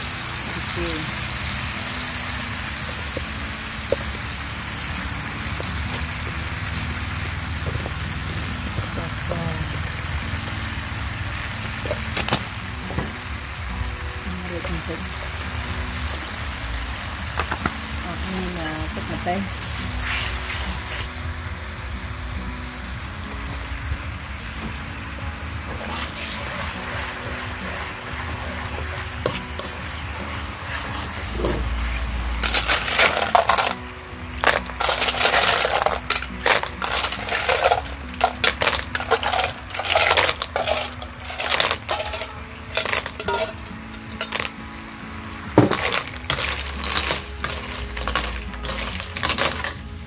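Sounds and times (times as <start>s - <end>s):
sauce sizzling in a wok: 0.0s - 50.0s
shells clattering in a wok: 32.4s - 33.8s, 34.4s - 44.5s, 45.6s - 49.8s.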